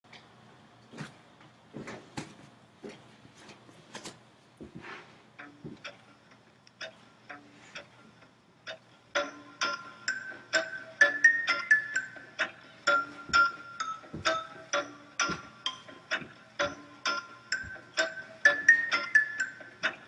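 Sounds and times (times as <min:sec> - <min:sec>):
music with sustained notes: 0:09.1 - 0:20.0
dull thumps: 0:14.1 - 0:14.5.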